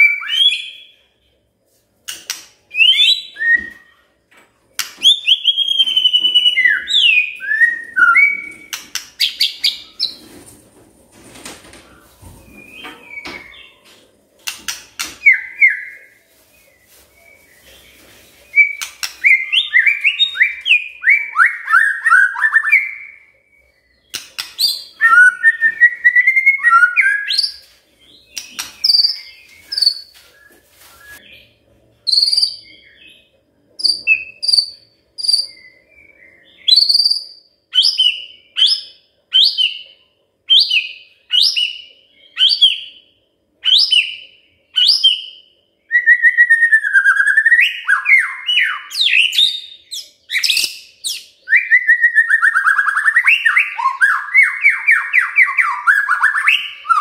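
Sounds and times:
bird singing whistled notes: 5.0 - 10.2, 18.5 - 33.2, 33.8 - 39.9, 40.5 - 57.0.

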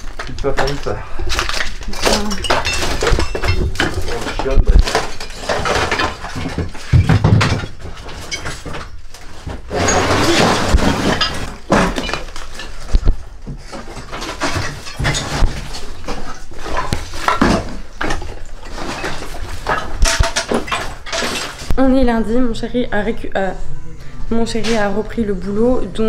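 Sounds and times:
rubble knocking and clattering: 0.0 - 22.1.

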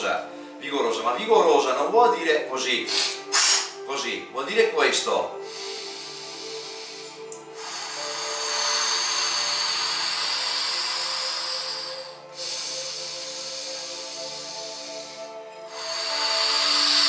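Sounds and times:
soft background music: 0.0 - 17.0
man breathing forcefully: 2.9 - 3.8, 5.3 - 17.0.

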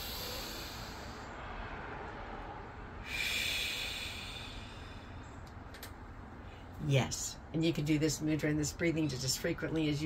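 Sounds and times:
woman exhaling through lips: 0.0 - 1.3, 3.0 - 5.0
woman breathing through nose: 0.0 - 1.5, 3.0 - 5.4.

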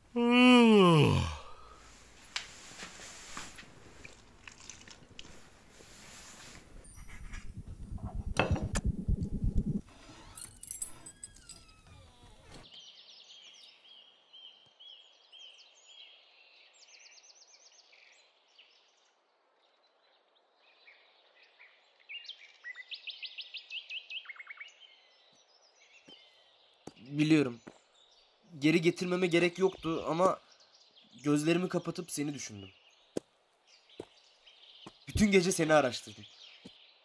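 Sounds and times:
faint outdoor hiss: 0.0 - 37.0
songbirds chirping: 10.4 - 37.0.

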